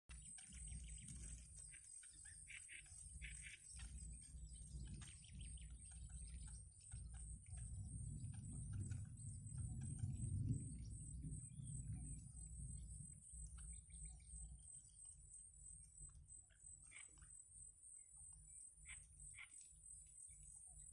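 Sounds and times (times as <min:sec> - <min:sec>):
chicks begging calls: 0:00.1 - 0:12.2
low rumble: 0:02.8 - 0:16.4.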